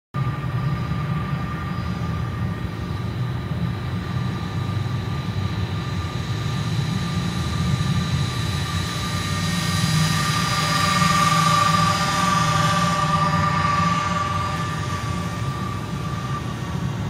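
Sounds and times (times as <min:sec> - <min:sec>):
high whine of electric motors: 0:00.2 - 0:17.0
low rumble: 0:06.3 - 0:17.0.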